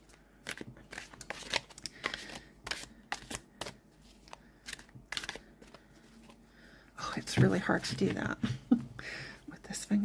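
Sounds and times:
cards being shuffled: 0.1 - 6.4.

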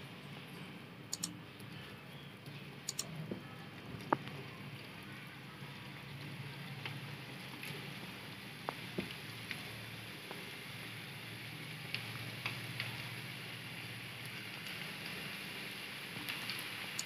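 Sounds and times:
oil sizzling while deep-frying: 5.7 - 17.0.

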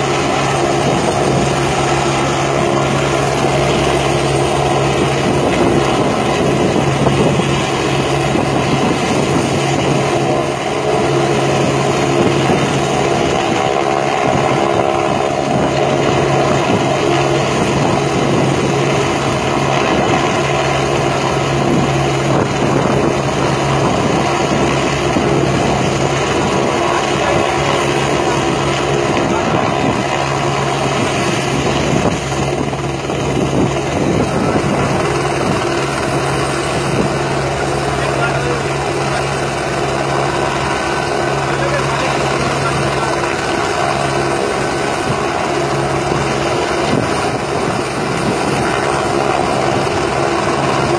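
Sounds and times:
helicopter rotor and engine: 0.0 - 50.9.

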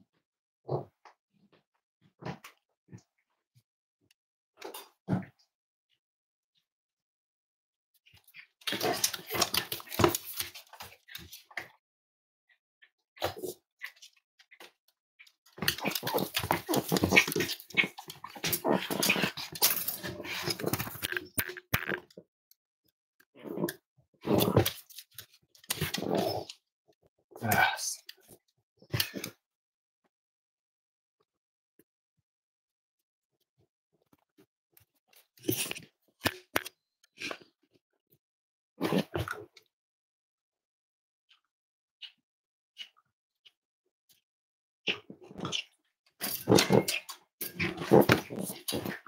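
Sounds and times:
dogs vocalising: 15.6 - 21.1.

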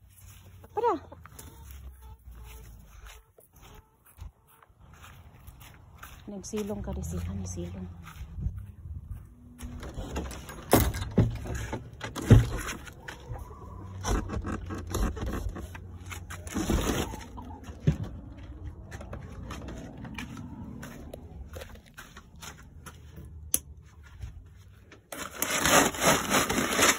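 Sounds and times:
wooden boards rubbing and rattling: 9.6 - 18.3, 25.1 - 26.9.

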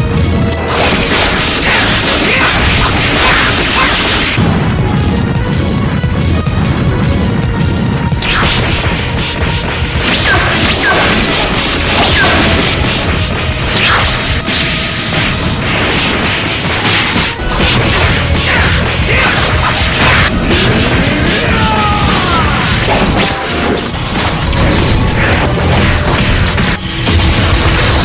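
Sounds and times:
dramatic background music: 0.0 - 28.0
cartoon punches and impacts: 8.2 - 28.0.

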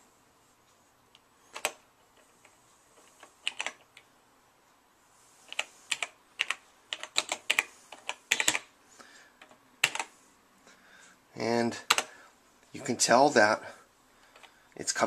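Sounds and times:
keyboard key clicks: 5.5 - 8.7, 11.9 - 12.1.

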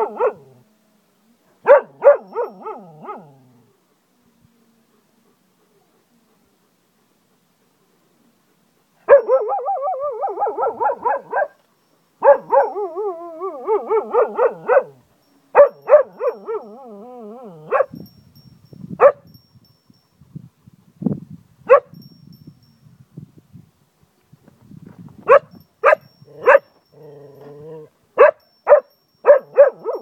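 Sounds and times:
dog yelping: 1.7 - 3.3, 9.1 - 11.5, 12.2 - 15.0, 15.6 - 17.9, 25.3 - 30.0
dog howling: 12.4 - 14.9.

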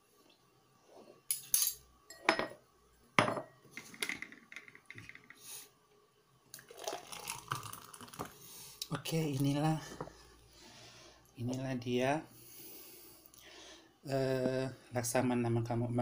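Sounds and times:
spoon and glass clinking: 1.3 - 2.6
thick drink pouring into glass: 6.6 - 8.4.

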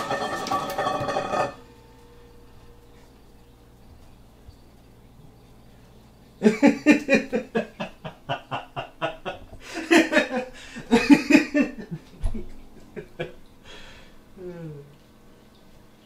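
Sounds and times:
person laughing: 6.4 - 13.4.

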